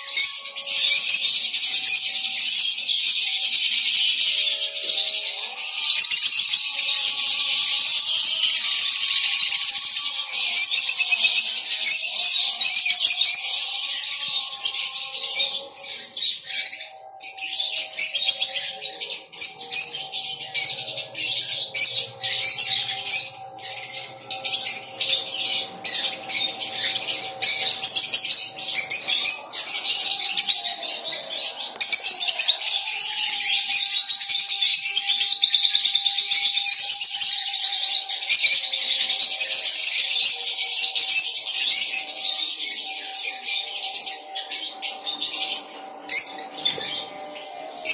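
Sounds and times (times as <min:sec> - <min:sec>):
lovebirds chirping shrilly: 0:17.8 - 0:33.9.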